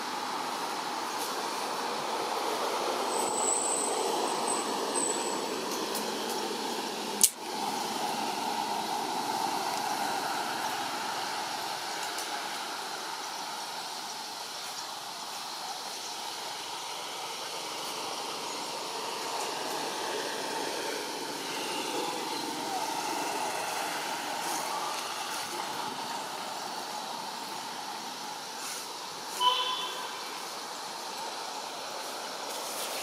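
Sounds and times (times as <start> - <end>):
outdoor background noise: 0.0 - 33.0
sharp click: 7.2 - 7.4
thin high whistle: 21.4 - 22.8, 29.3 - 30.2.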